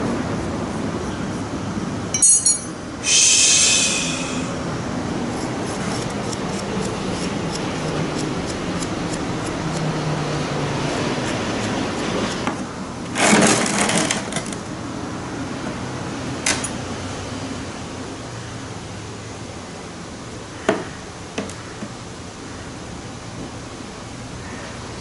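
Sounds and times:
steady background hiss: 0.0s - 13.1s, 14.6s - 25.0s
metal tools clinking: 2.1s - 2.8s.

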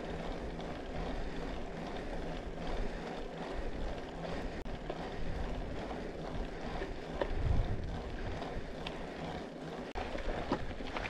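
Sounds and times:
bike tyre and frame rattle: 0.0s - 11.0s
wind buffeting microphone: 4.7s - 9.4s.

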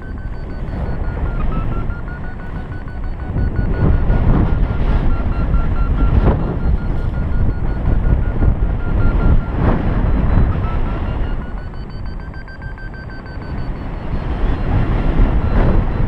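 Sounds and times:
variometer beeping rapidly: 0.0s - 16.0s
wind buffeting microphone: 0.0s - 16.0s.

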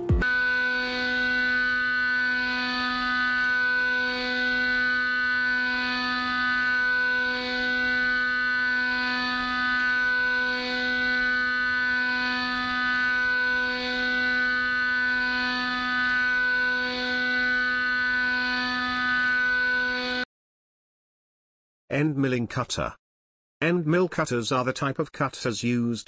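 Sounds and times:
end mill cutting metal: 0.1s - 20.2s.

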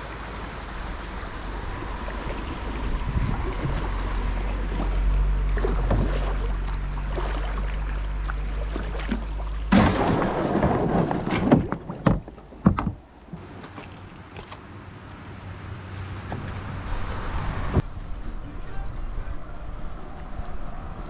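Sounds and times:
kayak gliding in water: 0.0s - 21.0s
loud knocks of kayak: 9.7s - 13.1s.

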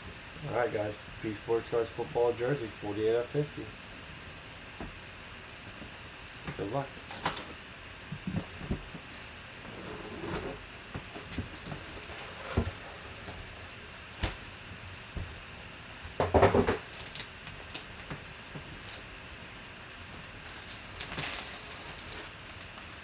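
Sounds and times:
plastic wrapping crinkling: 20.4s - 22.9s.

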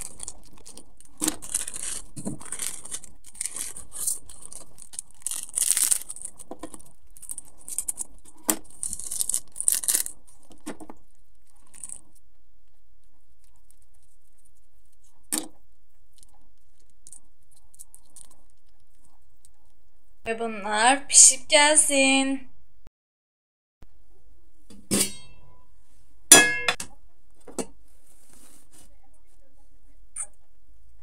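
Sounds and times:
plastic sachets crinkling and tearing: 0.0s - 12.2s, 16.0s - 19.6s.

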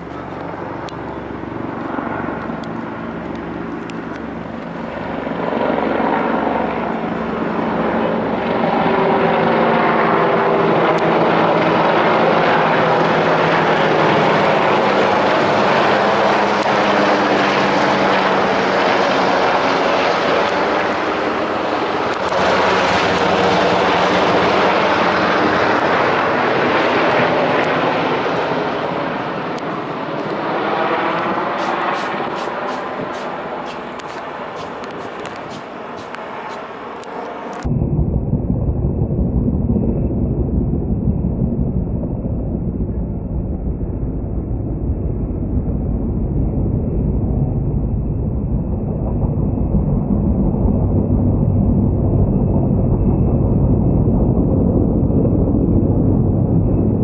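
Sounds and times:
helicopter rotor blade chop: 0.0s - 37.7s
turboshaft engine whine: 0.0s - 57.0s.

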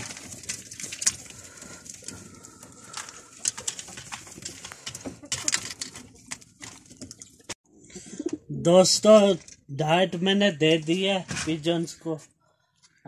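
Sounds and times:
pigeons cooing: 7.8s - 8.5s.

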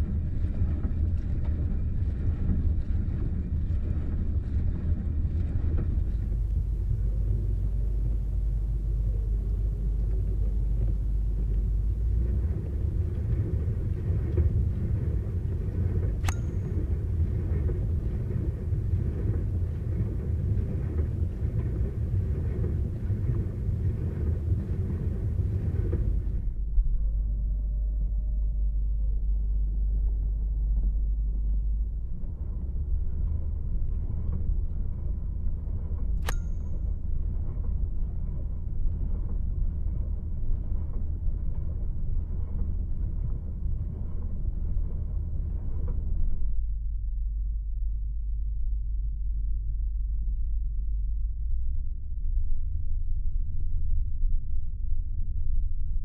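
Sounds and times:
dishwasher churning and rumbling: 9.0s - 16.1s
sharp click: 16.2s - 16.9s, 36.2s - 36.8s.

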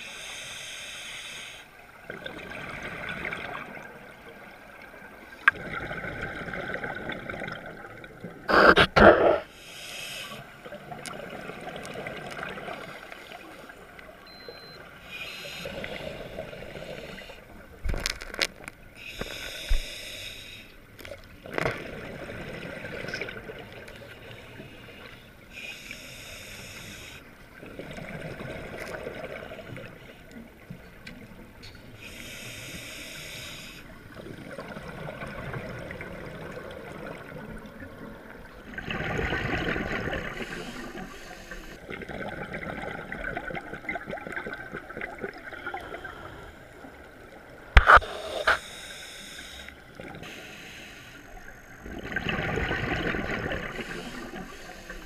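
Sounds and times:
diver breathing through regulator: 0.0s - 1.7s, 8.5s - 10.5s, 15.0s - 17.4s, 19.0s - 20.8s, 24.4s - 27.3s, 32.0s - 33.9s, 40.2s - 41.8s, 47.8s - 51.5s, 53.6s - 55.0s.

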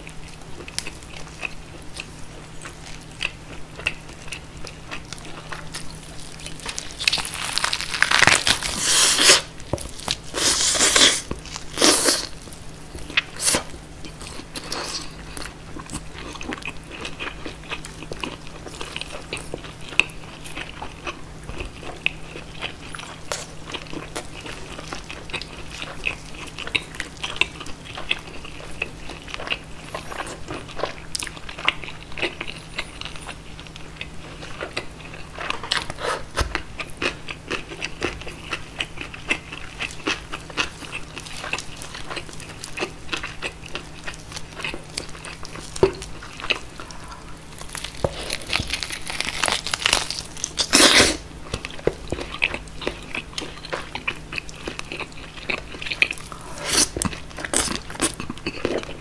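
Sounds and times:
crunching crisp skin: 0.4s - 59.0s
wet chewing mouth sounds: 13.0s - 49.8s, 50.4s - 59.0s.

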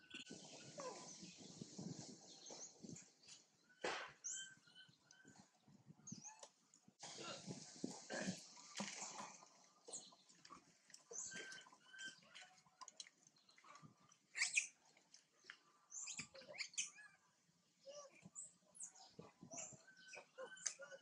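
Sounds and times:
animal chirps and squeaks: 14.4s - 14.8s, 15.9s - 17.2s, 17.9s - 21.0s.

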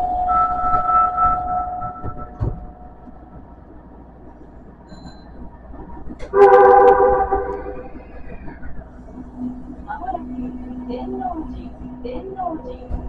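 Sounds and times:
train horn chord: 0.0s - 3.4s, 6.2s - 8.2s
train rumbling in tunnel: 0.0s - 13.0s.

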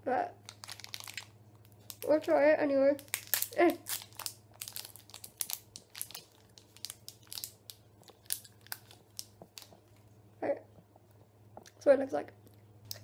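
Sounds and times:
gummy sweet being chewed: 0.4s - 2.2s, 3.0s - 11.8s
packet crinkling: 0.4s - 2.3s, 2.9s - 10.1s.

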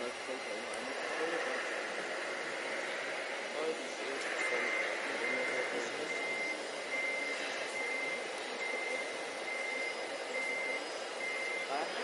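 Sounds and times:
high-pitched reversing alarm beeps: 4.4s - 12.0s.

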